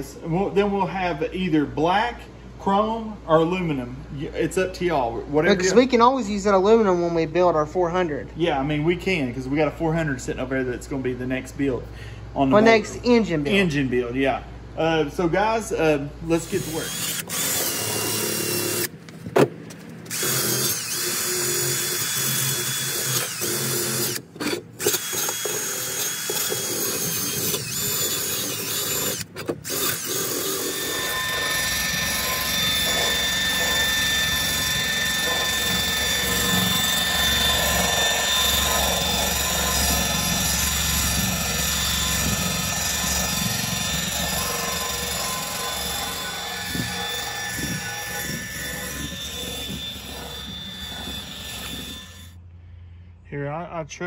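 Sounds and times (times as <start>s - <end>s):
cordless power drill running: 16.4s - 19.0s, 20.0s - 52.4s.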